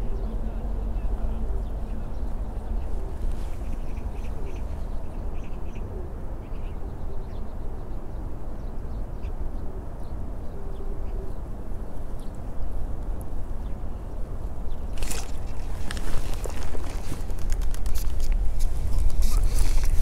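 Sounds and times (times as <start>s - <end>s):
faint bird calls: 0.0s - 12.4s.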